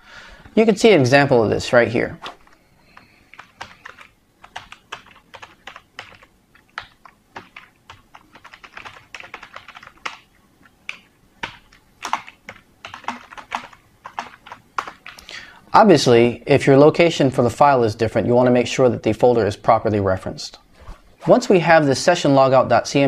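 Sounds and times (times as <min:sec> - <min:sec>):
typing on a computer keyboard: 0:02.8 - 0:15.3.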